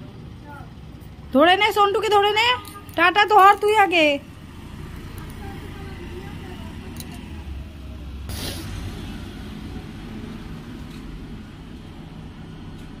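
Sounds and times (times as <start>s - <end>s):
street traffic hum: 0.0s - 13.0s
short hiss: 8.3s - 8.9s.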